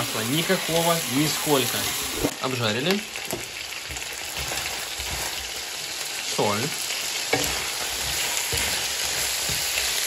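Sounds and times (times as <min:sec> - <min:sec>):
chicken sizzling in a wok: 0:00.0 - 0:10.0
wooden spatula stirring: 0:03.2 - 0:06.1, 0:07.2 - 0:10.0.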